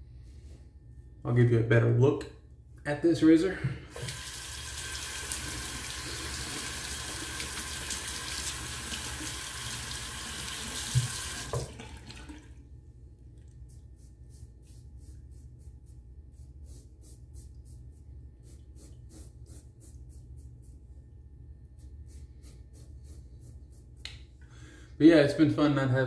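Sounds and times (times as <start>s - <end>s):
tap running into sink: 10.4s - 12.2s.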